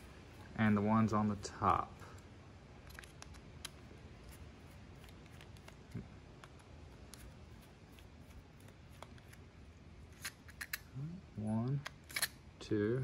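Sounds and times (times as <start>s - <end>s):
small screwdriver clicking and scraping: 2.8s - 4.4s, 10.1s - 10.8s, 11.8s - 12.3s.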